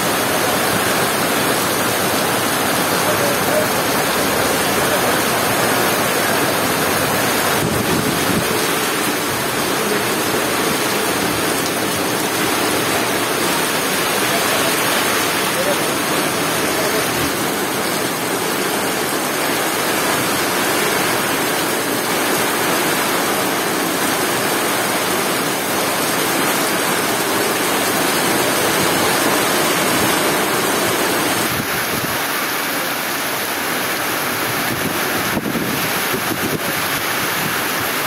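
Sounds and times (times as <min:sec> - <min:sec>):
heavy rain on road: 0:00.0 - 0:38.0.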